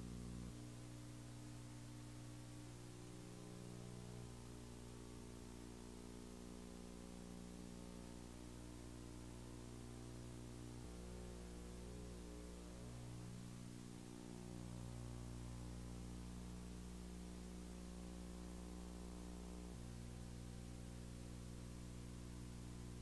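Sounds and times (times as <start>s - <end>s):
electrical hum: 0.0s - 23.0s.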